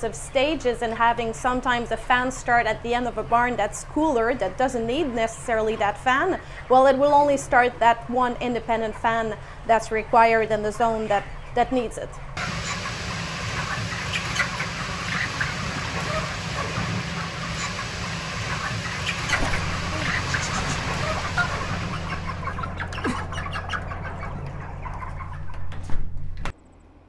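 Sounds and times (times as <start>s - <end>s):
steady low hum: 0.0s - 27.0s
chickens clucking and chirping: 2.5s - 25.8s.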